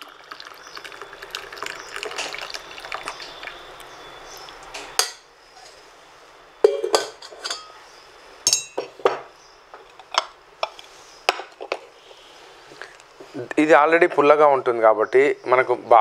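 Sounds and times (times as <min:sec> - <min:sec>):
cookware knocking on cooktop: 0:06.6 - 0:07.6
metal ringing: 0:06.6 - 0:07.8, 0:08.4 - 0:08.9.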